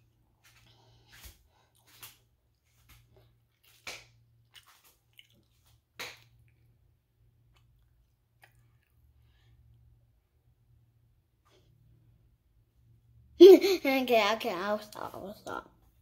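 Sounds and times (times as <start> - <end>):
person chewing: 2.8 - 6.8, 7.4 - 9.2.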